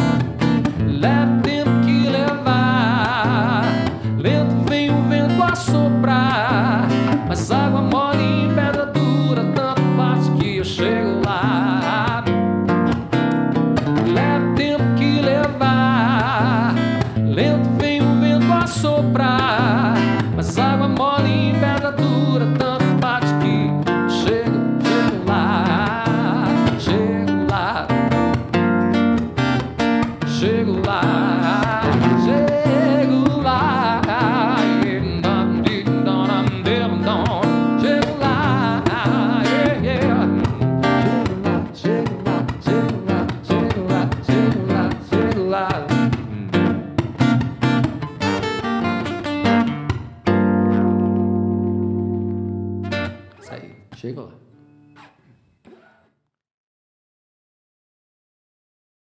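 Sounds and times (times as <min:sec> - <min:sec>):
strummed acoustic guitar: 0:00.0 - 0:56.1
man singing: 0:00.8 - 0:12.5, 0:14.0 - 0:28.6, 0:30.0 - 0:46.9.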